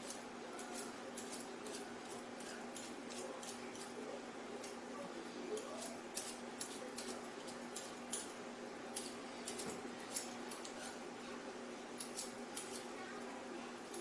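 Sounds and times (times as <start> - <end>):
knife scraping potato skin: 0.0 - 4.0, 5.6 - 11.0, 12.0 - 12.9.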